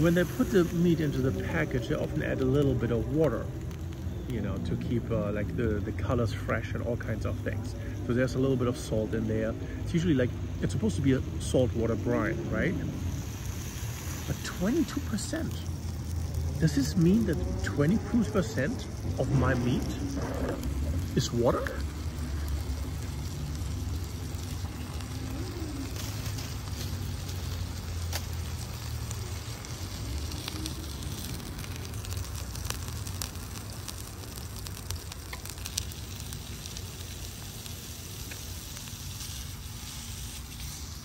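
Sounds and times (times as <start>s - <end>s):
meat sizzling on a grill: 0.0s - 41.0s
crackling pops: 12.6s - 41.0s.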